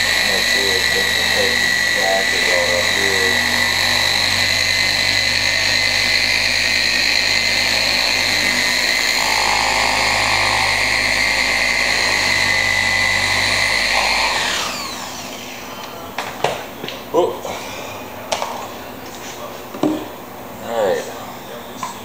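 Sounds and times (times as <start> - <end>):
electric car polisher whining: 0.0 - 16.0.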